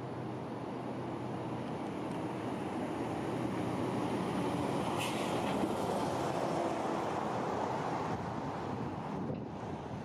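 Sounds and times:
truck passing close by: 2.6 - 9.8.

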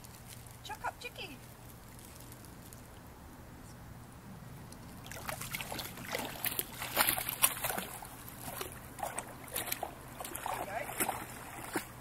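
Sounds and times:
water splashing around a kayak: 4.9 - 12.0.

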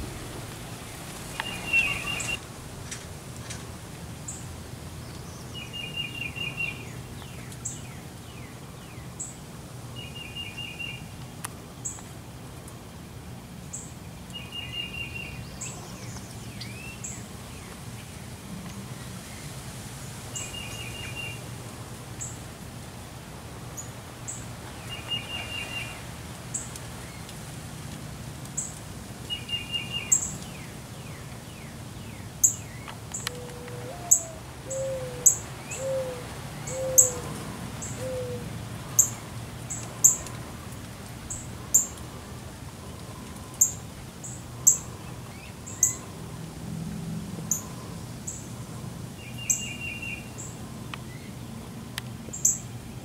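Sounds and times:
birds chipping: 0.0 - 2.4, 29.3 - 40.4
low down-slurred bird notes: 0.0 - 2.4.

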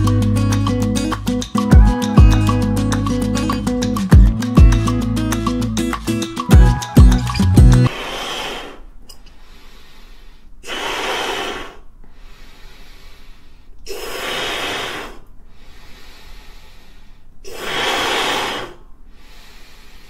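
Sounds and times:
person blowing into paper balloon: 7.8 - 8.9, 10.6 - 11.8, 12.4 - 15.2, 17.4 - 19.6.

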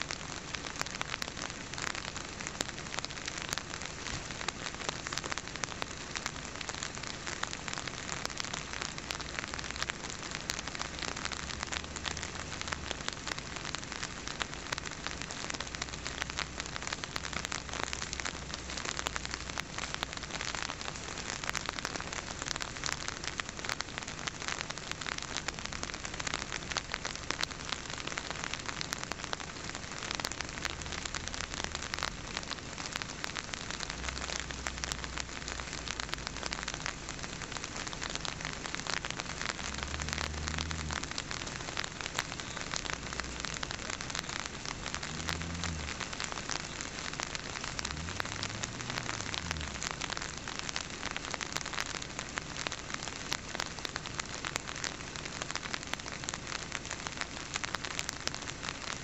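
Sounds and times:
rain falling: 0.0 - 59.0
faint low hums: 39.4 - 50.4.

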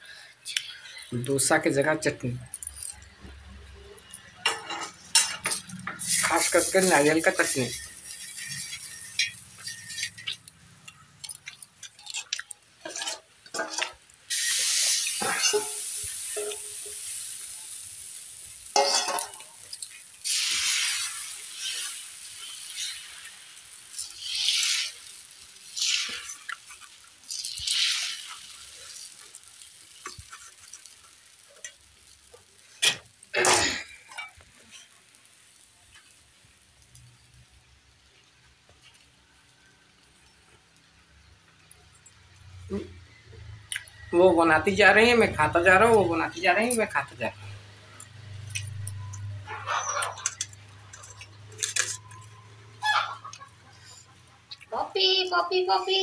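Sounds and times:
short bursts of hissing: 6.0 - 10.1, 14.3 - 26.6, 27.2 - 31.6
pancake being chewed: 8.3 - 13.9, 21.3 - 33.3.

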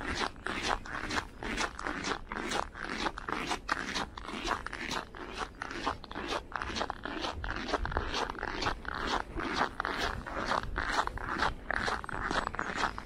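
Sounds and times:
footsteps crunching on snow: 0.0 - 13.0.

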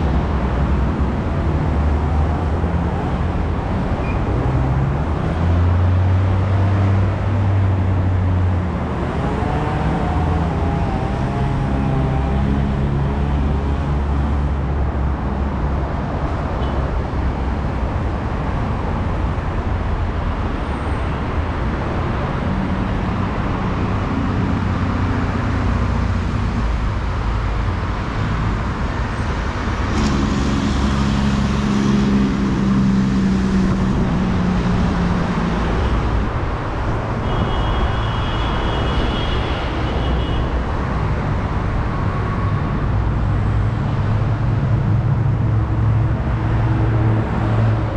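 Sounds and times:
loud vehicle passing: 0.0 - 16.3, 21.2 - 37.2
highway traffic: 0.0 - 47.9.

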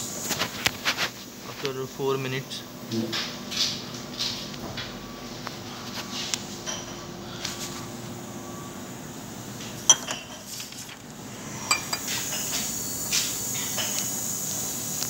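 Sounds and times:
faint steady hum: 3.9 - 15.0
glassware clinking: 9.8 - 10.5, 11.6 - 12.6.

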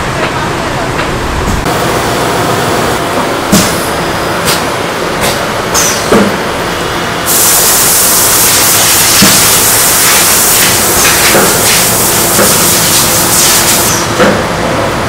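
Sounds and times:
rushing hiss of kitchen machinery: 7.2 - 14.2.

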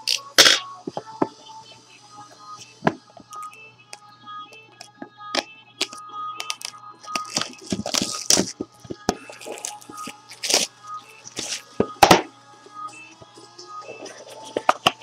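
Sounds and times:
packaging tearing and crinkling: 5.8 - 8.5, 9.3 - 10.7, 11.3 - 11.6.

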